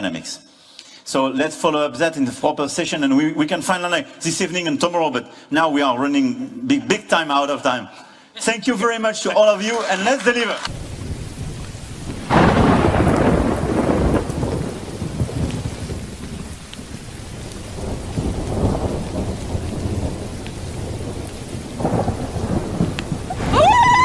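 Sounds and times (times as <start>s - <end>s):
rain falling: 9.6s - 24.0s
rolling thunder: 10.7s - 24.0s.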